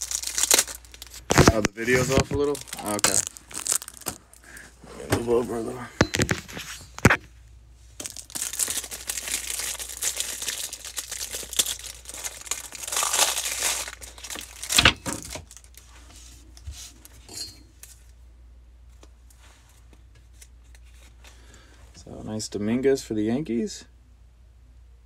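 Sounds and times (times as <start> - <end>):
foil wrapper crinkling: 0.0 - 4.6, 8.0 - 16.0.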